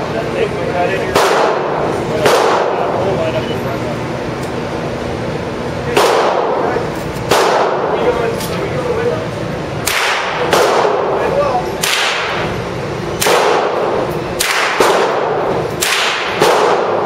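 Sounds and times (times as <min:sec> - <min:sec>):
rifle shots echoing indoors: 0:01.1 - 0:02.8, 0:05.9 - 0:06.6, 0:07.3 - 0:08.0, 0:09.8 - 0:11.2, 0:11.8 - 0:12.4, 0:13.2 - 0:17.0.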